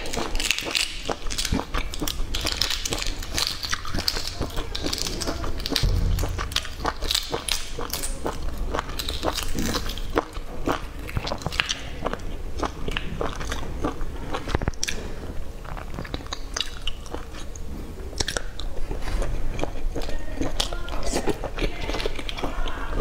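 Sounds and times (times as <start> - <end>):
eggshells cracking and peeling: 0.0 - 13.6
biting and chewing egg: 0.0 - 23.0.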